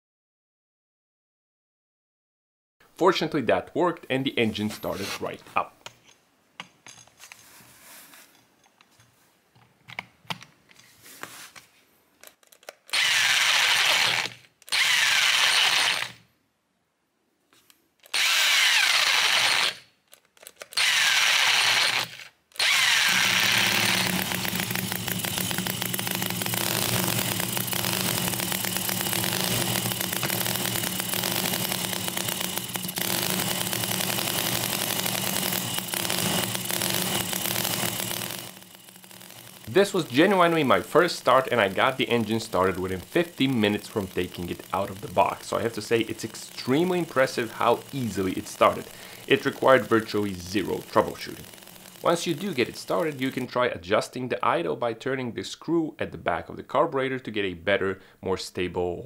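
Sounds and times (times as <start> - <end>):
electric drill whirring: 12.9 - 16.2, 18.0 - 19.9, 20.6 - 53.5
miniature engine running: 12.9 - 16.2, 18.0 - 19.8, 20.6 - 53.6.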